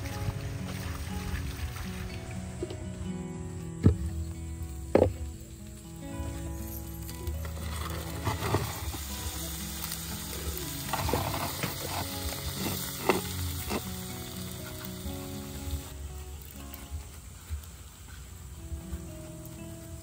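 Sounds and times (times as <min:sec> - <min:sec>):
soft background music: 0:00.0 - 0:20.0
chickens sizzling on metal tray: 0:06.6 - 0:20.0
tray scraping oven floor: 0:07.5 - 0:09.2, 0:10.8 - 0:13.9.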